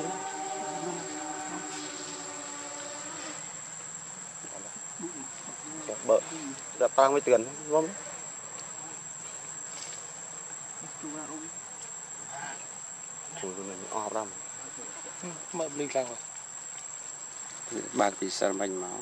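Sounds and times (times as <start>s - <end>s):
insects droning: 0.0s - 19.0s
voices: 4.4s - 9.4s, 10.8s - 11.6s.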